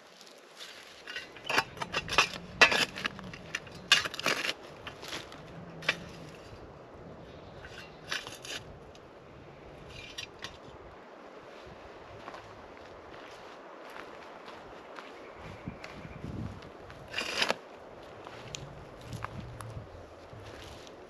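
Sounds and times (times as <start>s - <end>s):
shovel scraping ash and stones: 0.6s - 6.6s, 7.4s - 9.0s, 9.8s - 10.7s, 17.0s - 17.6s.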